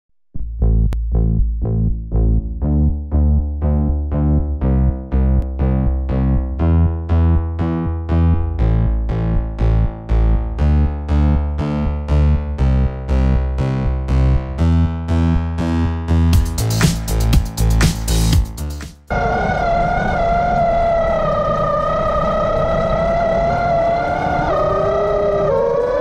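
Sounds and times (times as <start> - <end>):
steady low bass: 0.2 - 26.0.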